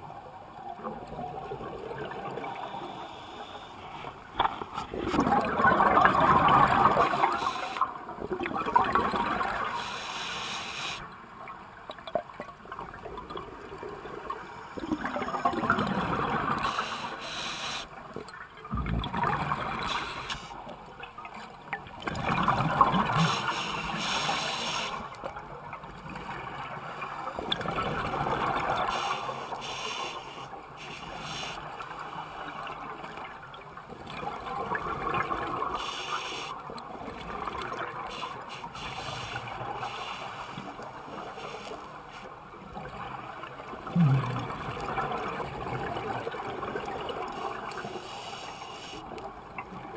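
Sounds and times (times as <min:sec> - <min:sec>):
regulator hiss on inhale: 0:02.5 - 0:04.0, 0:07.1 - 0:07.9, 0:09.7 - 0:11.0, 0:16.6 - 0:17.9, 0:19.8 - 0:20.6, 0:23.1 - 0:25.1, 0:28.8 - 0:31.6, 0:35.7 - 0:36.6, 0:38.1 - 0:42.3, 0:47.7 - 0:49.1
exhaled bubbles gushing: 0:04.9 - 0:09.8, 0:14.8 - 0:17.1, 0:18.6 - 0:20.5, 0:21.9 - 0:24.2, 0:42.8 - 0:47.9.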